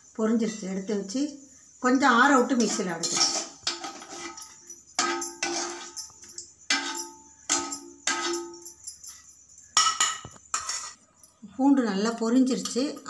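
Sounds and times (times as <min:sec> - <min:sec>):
metal ladle clanking on iron pan: 0:02.4 - 0:08.6, 0:09.8 - 0:11.0.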